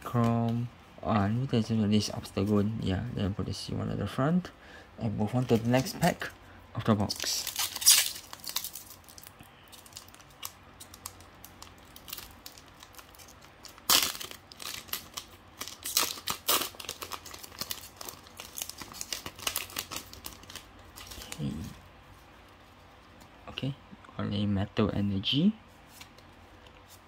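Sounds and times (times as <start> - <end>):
foil wrapper crinkling and tearing: 7.0 - 21.6.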